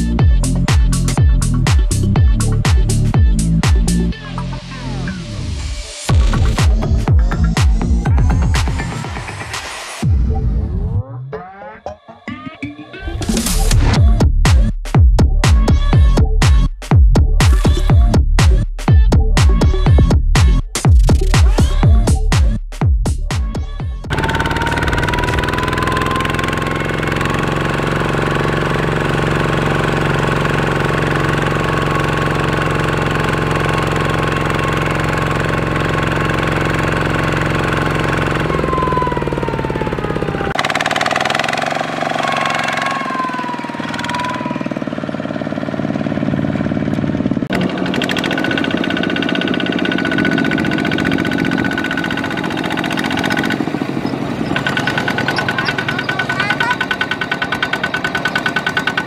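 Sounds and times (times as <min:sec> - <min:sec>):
diesel engine running under load: 0:00.0 - 0:09.5, 0:24.1 - 0:59.0.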